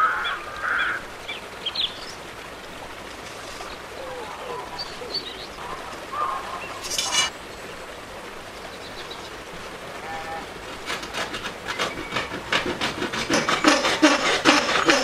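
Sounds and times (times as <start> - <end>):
hand saw cutting metal: 6.8 - 7.3, 10.8 - 15.0
marker scratching on metal: 6.8 - 7.3.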